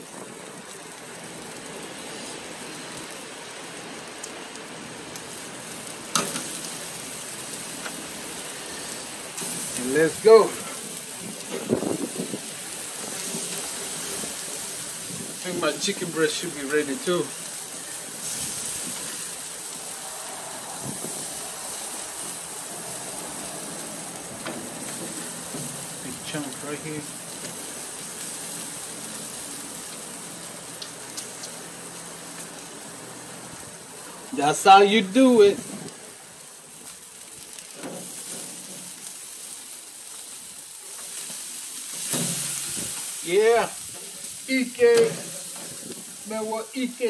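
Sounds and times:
meat sizzling on a grill: 0:00.0 - 0:47.0.

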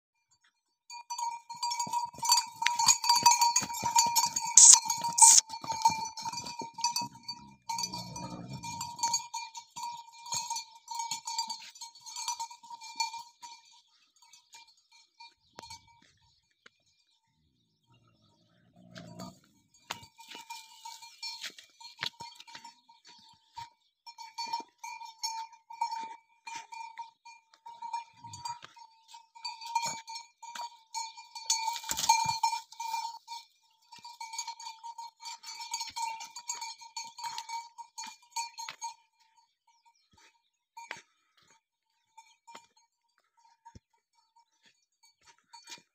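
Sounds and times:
metal bell clanking: 0:01.4 - 0:11.5.

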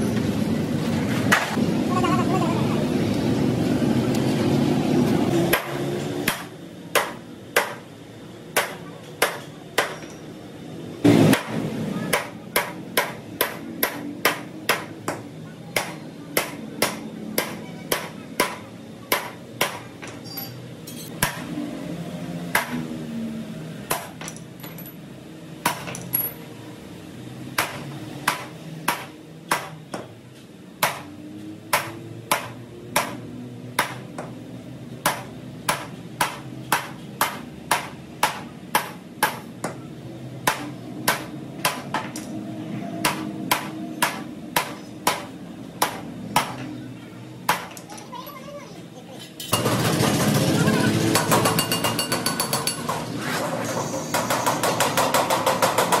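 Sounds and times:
hammer striking chisel on steel: 0:11.3 - 0:21.5, 0:31.7 - 0:33.2, 0:35.0 - 0:39.8, 0:43.0 - 0:46.7, 0:51.1 - 0:53.1.

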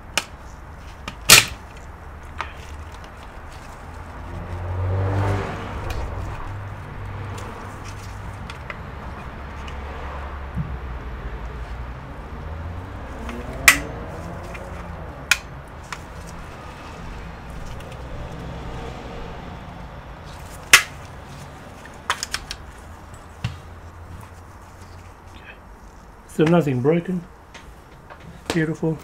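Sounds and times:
plastic clips snapping: 0:01.0 - 0:03.3, 0:13.2 - 0:16.1, 0:20.6 - 0:21.1, 0:21.8 - 0:22.7.

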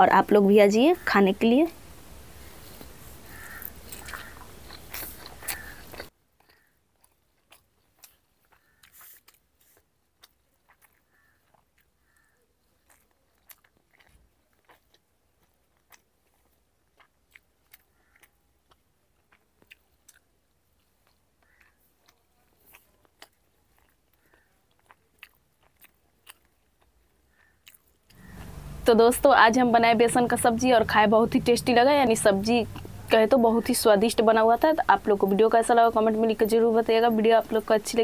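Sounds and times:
background hiss: 0:00.8 - 0:06.0
chewing and mouth clicks: 0:02.7 - 0:28.8.

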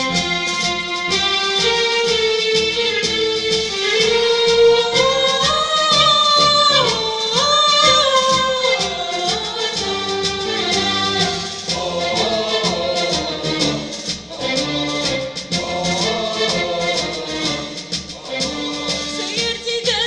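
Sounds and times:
instrumental accompaniment with beat: 0:00.0 - 0:20.0
mixed choir singing: 0:00.0 - 0:20.0.

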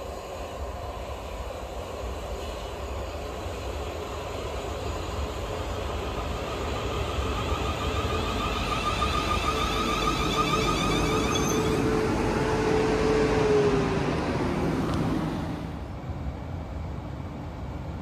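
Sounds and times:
train wheel rumble: 0:00.0 - 0:18.0
electric train motor whine: 0:05.2 - 0:15.8.

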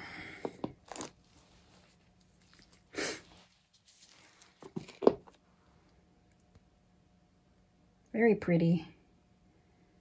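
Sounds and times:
breathy hiss: 0:02.9 - 0:03.5.

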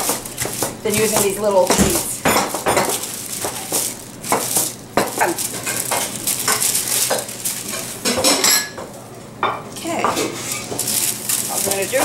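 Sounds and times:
rolling pin crinkling wax paper: 0:00.0 - 0:08.5, 0:10.3 - 0:12.0.

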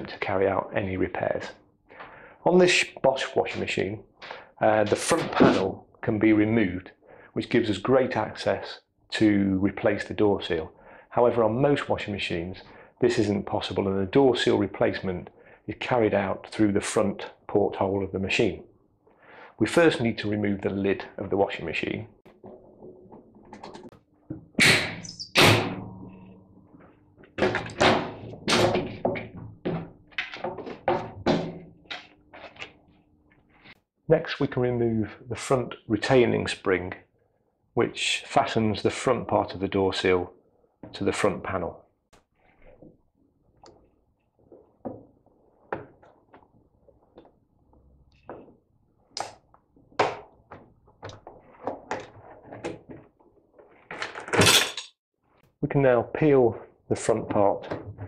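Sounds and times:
loud thuds on metal cabinet: 0:24.6 - 0:25.9.

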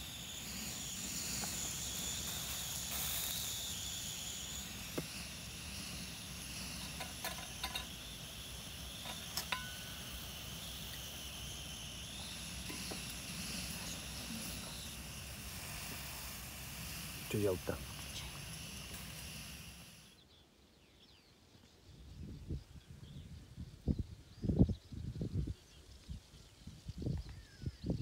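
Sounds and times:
insects chirring: 0:00.0 - 0:20.2.

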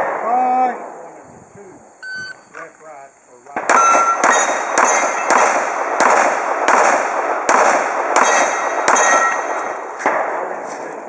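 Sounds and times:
pistol shots echoing: 0:00.0 - 0:01.0, 0:03.5 - 0:10.6.

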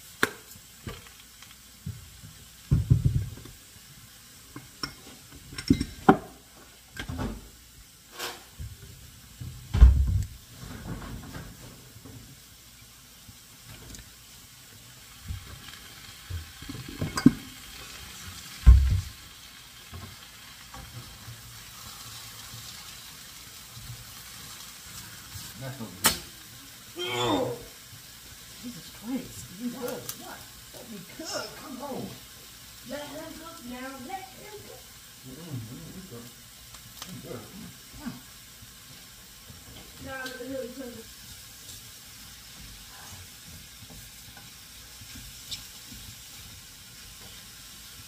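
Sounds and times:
mushrooms sizzling in a skillet: 0:00.0 - 0:48.0
heavy thuds on stovetop: 0:02.7 - 0:03.4, 0:09.4 - 0:11.6, 0:18.6 - 0:19.2
utensils knocking on pans: 0:04.8 - 0:06.4, 0:16.7 - 0:17.5.

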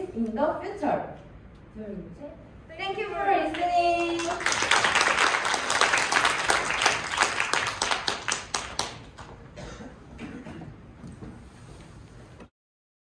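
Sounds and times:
applause: 0:03.5 - 0:09.4.

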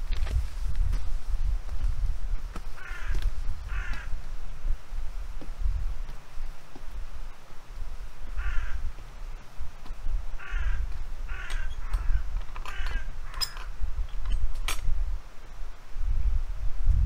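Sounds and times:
wind rumble on microphone: 0:00.0 - 0:17.0
bird calling harshly: 0:02.8 - 0:04.2, 0:08.3 - 0:08.9, 0:10.4 - 0:13.8.

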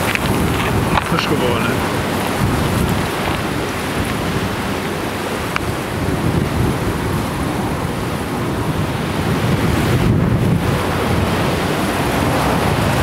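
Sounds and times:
jet engines roaring: 0:00.0 - 0:06.0.

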